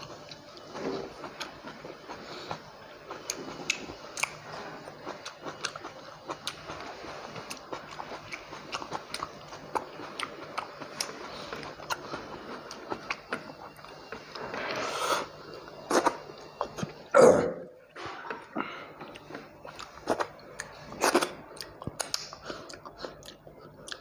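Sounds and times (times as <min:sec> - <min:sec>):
person chewing with wet smacks: 0:00.0 - 0:14.4, 0:18.2 - 0:24.0.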